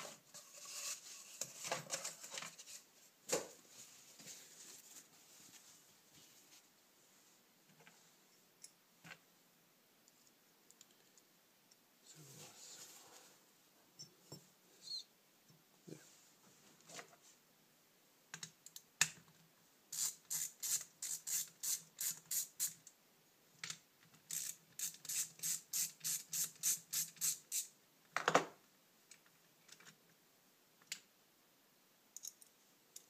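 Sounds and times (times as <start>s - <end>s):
ratchet clicking: 24.3s - 27.7s.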